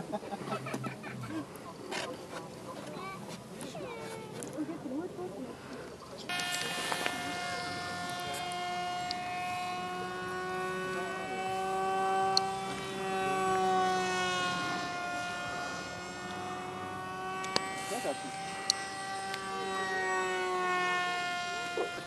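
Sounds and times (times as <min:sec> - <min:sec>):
propeller motor whine: 0:06.2 - 0:22.0.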